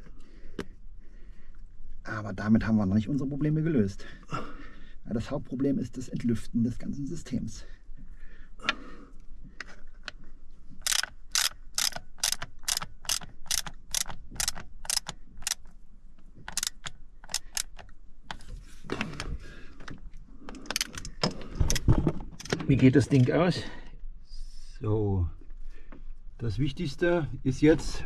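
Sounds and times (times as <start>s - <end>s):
ratchet wrench clicking: 10.8s - 15.6s, 16.5s - 17.8s.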